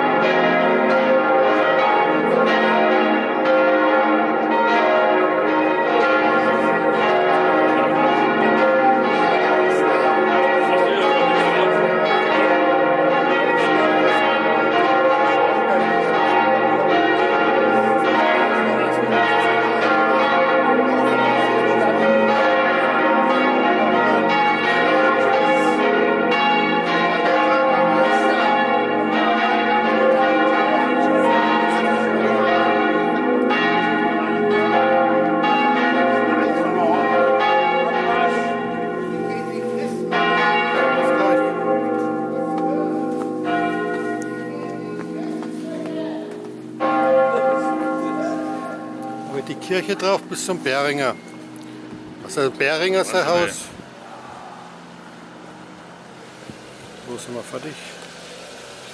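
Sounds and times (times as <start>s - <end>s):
church bells pealing: 0.0s - 58.9s.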